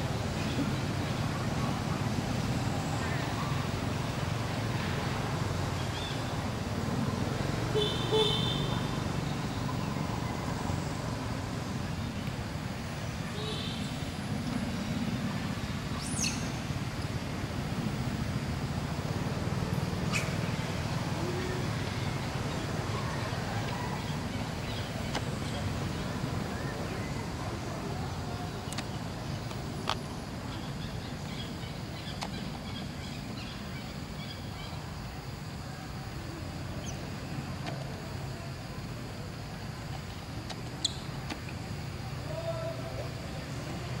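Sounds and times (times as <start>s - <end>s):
low outdoor rumble: 0.0s - 44.0s
faint high chirps: 40.8s - 41.2s.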